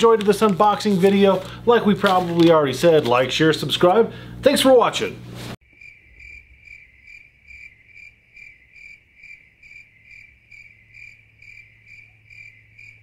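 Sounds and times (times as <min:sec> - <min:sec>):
cricket chirping: 0:05.6 - 0:13.0.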